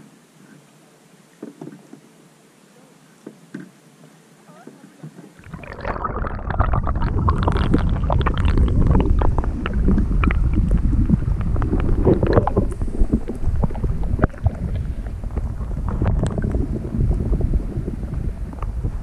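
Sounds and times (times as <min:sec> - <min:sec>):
muffled underwater water rumble: 0:05.3 - 0:19.0
water gurgles and crackling clicks: 0:05.3 - 0:19.0.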